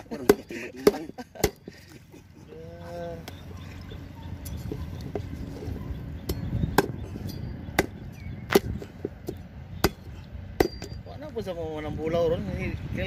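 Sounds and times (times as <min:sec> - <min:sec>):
machete chopping on wooden board: 0:00.2 - 0:01.6, 0:06.3 - 0:07.0, 0:07.7 - 0:10.9.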